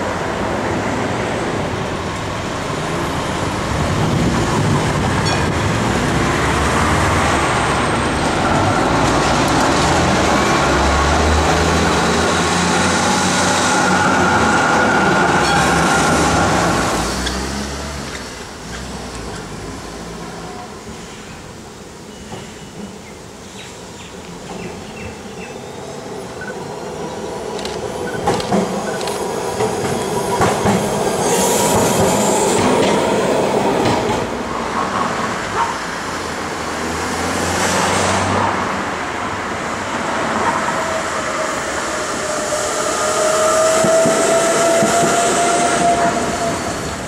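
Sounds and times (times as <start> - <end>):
passing road traffic: 0.0 - 22.0, 24.1 - 47.0
tram wheels clacking over rail joints: 26.4 - 36.0, 40.0 - 47.0.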